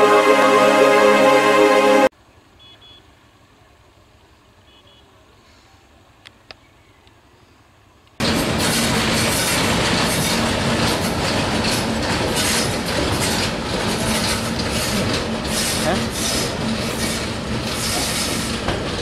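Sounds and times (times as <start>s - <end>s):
diesel locomotive and wagons rolling: 7.7s - 19.0s
wheels clattering over rail joints: 8.2s - 19.0s.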